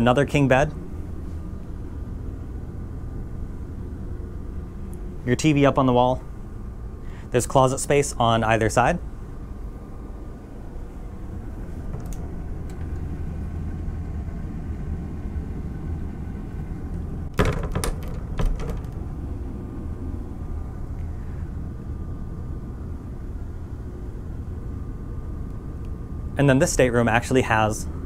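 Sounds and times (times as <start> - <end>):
machinery and ventilation hum: 0.0 - 28.0
cabin door knocks and clicks: 17.3 - 19.0.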